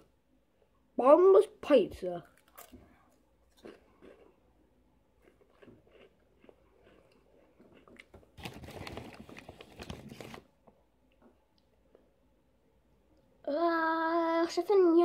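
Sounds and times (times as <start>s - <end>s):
faint crunching of snacks: 2.2s - 12.1s
plastic bag rustling: 8.2s - 10.5s.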